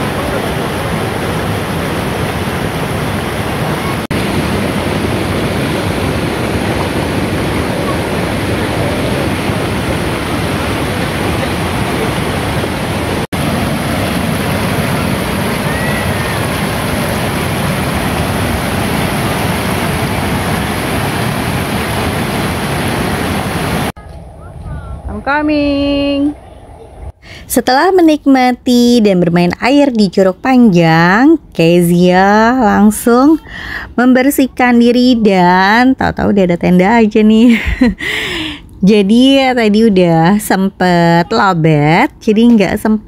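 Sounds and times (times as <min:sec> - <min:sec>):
waterfall and rushing stream: 0:00.0 - 0:24.0.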